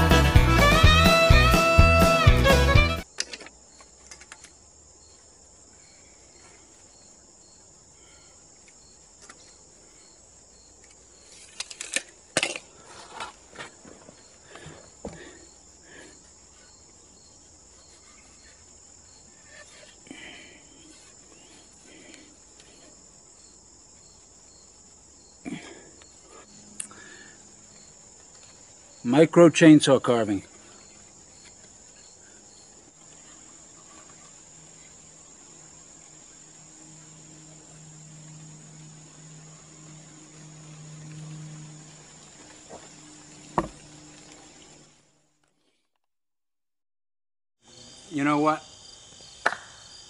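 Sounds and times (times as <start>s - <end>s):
crickets trilling: 3.0s - 45.1s, 47.6s - 50.0s
knocks and rustles: 42.7s - 43.8s.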